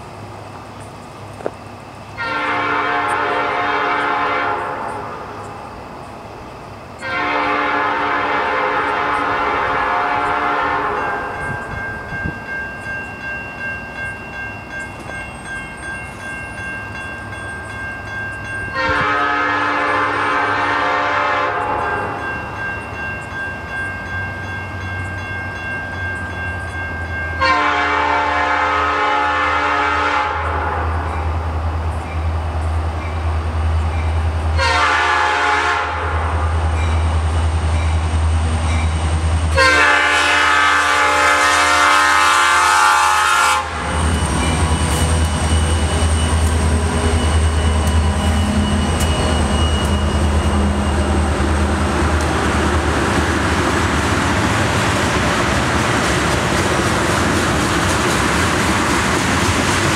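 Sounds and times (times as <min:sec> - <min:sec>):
crossing bell ringing: 0:00.6 - 0:35.7, 0:36.7 - 0:55.7
locomotive air horn blasts: 0:02.2 - 0:05.3, 0:07.0 - 0:11.4, 0:18.8 - 0:22.2, 0:27.4 - 0:31.1, 0:34.6 - 0:36.6, 0:39.5 - 0:44.0.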